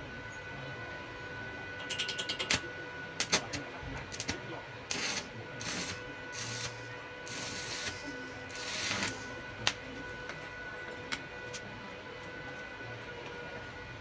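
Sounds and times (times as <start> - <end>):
welding arc crackling: 1.8 - 2.6, 3.2 - 10.0.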